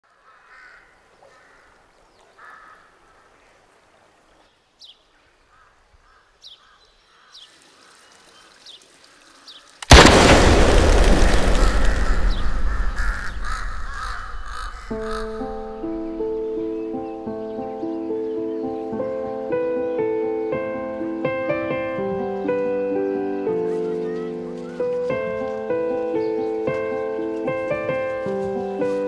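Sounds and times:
crows cawing: 0:00.1 - 0:03.6, 0:05.2 - 0:08.0, 0:09.1 - 0:16.8
small birds chirping: 0:00.1 - 0:29.0
deep cinematic boom: 0:09.9 - 0:16.9.

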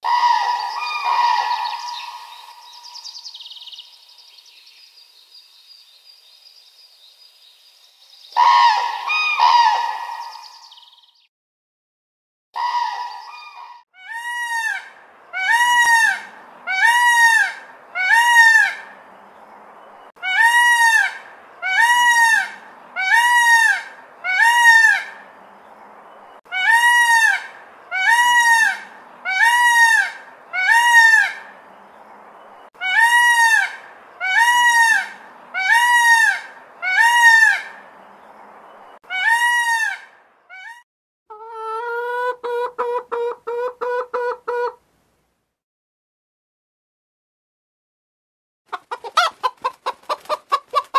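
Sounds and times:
peacock calling: 0:00.0 - 0:05.0, 0:08.2 - 0:11.3, 0:12.6 - 0:19.3, 0:20.1 - 0:25.7, 0:26.4 - 0:32.0, 0:32.7 - 0:44.8, 0:48.7 - 0:50.9.

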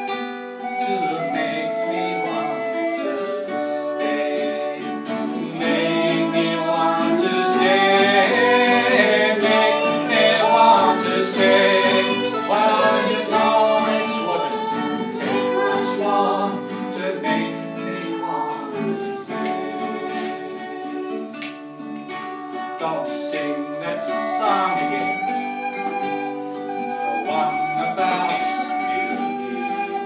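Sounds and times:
tin whistle: 0:00.0 - 0:21.3, 0:22.4 - 0:30.0
fiddle melody: 0:00.0 - 0:30.0
strummed acoustic guitar: 0:00.0 - 0:30.0.

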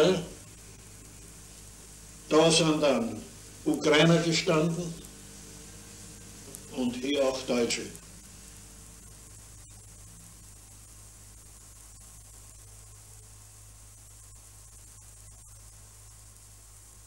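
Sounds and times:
low mains hum: 0:00.0 - 0:17.0
steady hiss: 0:00.0 - 0:17.0.

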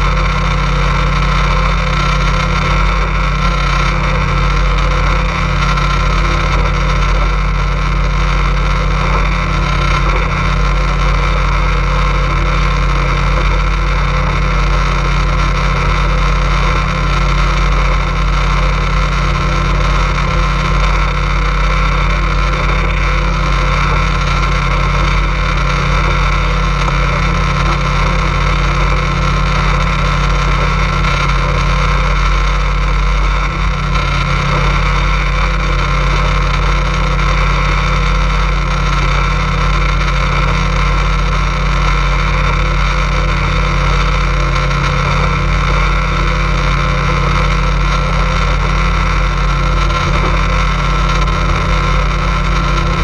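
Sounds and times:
motorboat engine droning: 0:00.0 - 0:53.0.

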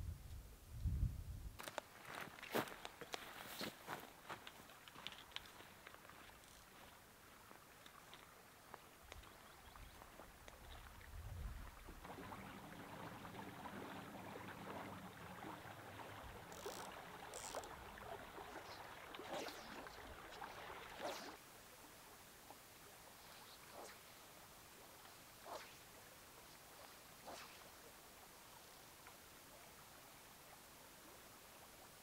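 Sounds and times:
light clicks and rustles: 0:01.6 - 0:07.0
creek flowing: 0:01.8 - 0:32.0.

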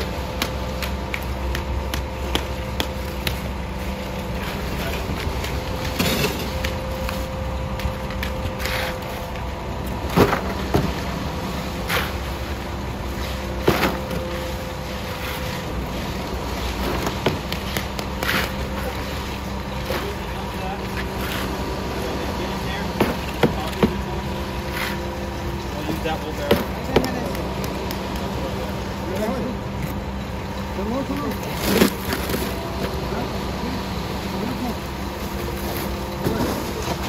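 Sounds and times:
engine humming: 0:00.0 - 0:37.0
shovel scraping wet concrete: 0:08.6 - 0:09.3, 0:11.8 - 0:12.4, 0:14.9 - 0:21.6, 0:23.0 - 0:25.1.

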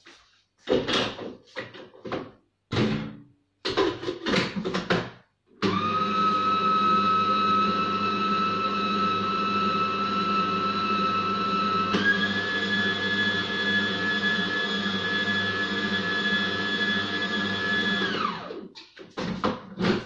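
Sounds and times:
food processor motor whine: 0:05.6 - 0:18.7.

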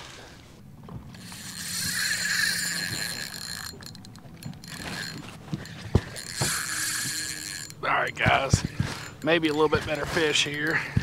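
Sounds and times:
fishing reel whirring: 0:01.0 - 0:11.0
fishing reel clicks: 0:01.1 - 0:11.0.

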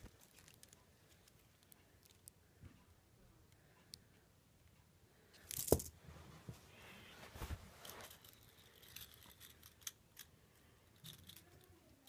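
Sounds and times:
small plastic clicks: 0:00.0 - 0:02.4.

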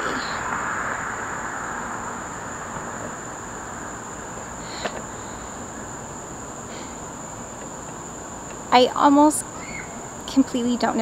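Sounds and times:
background hiss: 0:00.0 - 0:11.0
crickets chirring: 0:00.0 - 0:11.0.

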